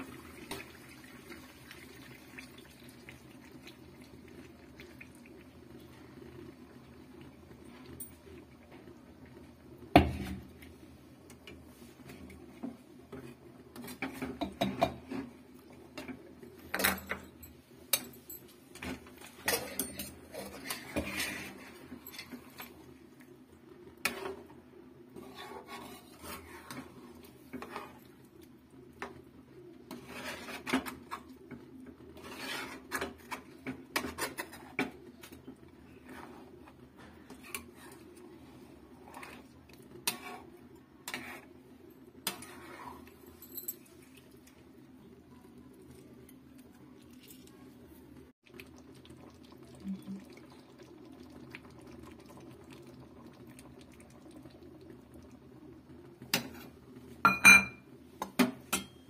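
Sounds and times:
spatula scraping a pan: 19.4s - 22.4s, 25.1s - 28.1s, 29.9s - 31.3s, 32.1s - 34.9s, 35.9s - 41.6s, 42.2s - 43.2s.

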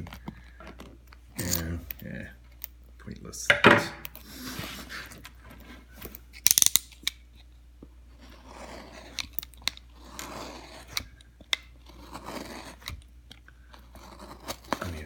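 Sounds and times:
knife cutting through leather: 8.2s - 13.1s, 13.8s - 15.0s.

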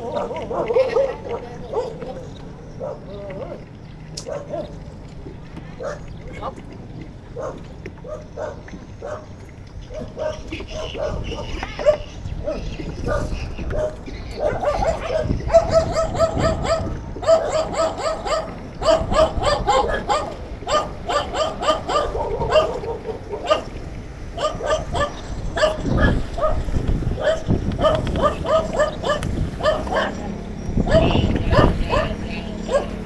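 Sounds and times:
dog barking in high yelps: 9.9s - 23.7s, 24.4s - 26.6s, 27.2s - 30.2s, 30.8s - 33.0s.

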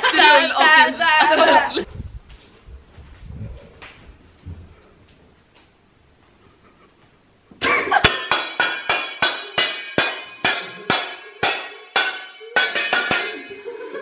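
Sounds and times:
bright struck notes music: 8.1s - 13.7s.

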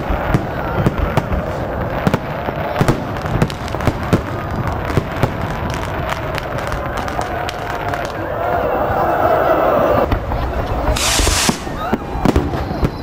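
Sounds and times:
firework shells bursting: 10.8s - 12.8s.

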